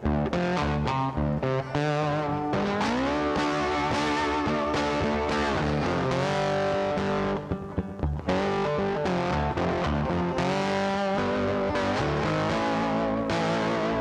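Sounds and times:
distorted electric guitar music: 0.0 - 14.0.

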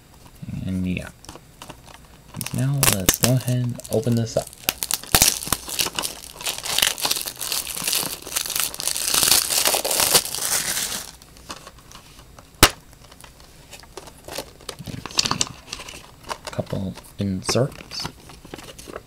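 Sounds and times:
plastic wrap tearing and crinkling: 1.6 - 11.9.

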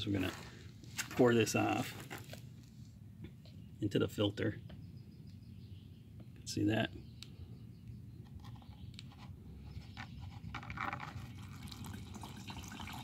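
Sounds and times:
liquid trickling and dripping: 11.2 - 13.0.

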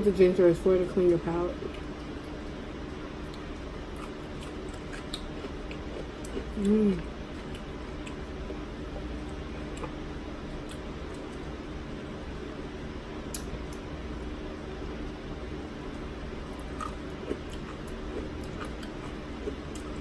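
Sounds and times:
low background hum: 0.0 - 20.0
person chewing: 1.6 - 11.5, 13.2 - 13.9, 16.4 - 20.0
person humming mm: 6.6 - 7.1.

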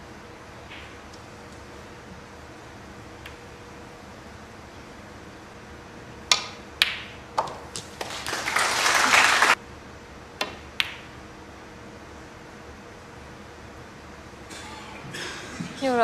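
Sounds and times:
snooker balls clicking: 6.3 - 8.4, 10.4 - 11.1
audience applause: 7.9 - 9.6.

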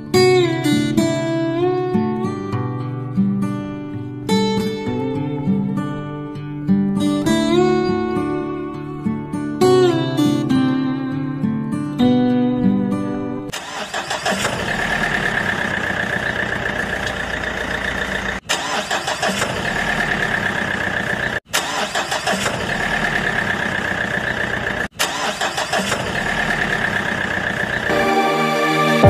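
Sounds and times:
vehicle engine rumbling: 14.0 - 21.5, 22.3 - 27.9.

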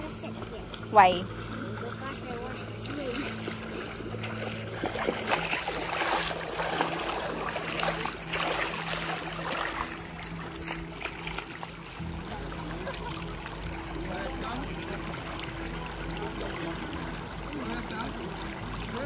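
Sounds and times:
low steady hum: 0.0 - 19.0
water splashing and rushing: 0.0 - 19.0.

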